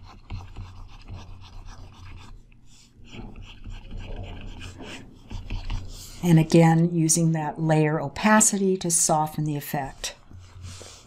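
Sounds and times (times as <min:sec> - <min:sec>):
stylus scratching drawing tablet: 0:00.0 - 0:02.4, 0:03.0 - 0:07.2, 0:08.2 - 0:11.0
faint breathing: 0:10.5 - 0:11.0.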